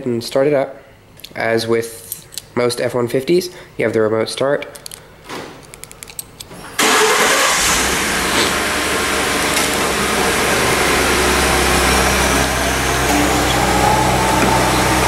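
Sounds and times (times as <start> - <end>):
car engine starting and idling: 6.8 - 15.0.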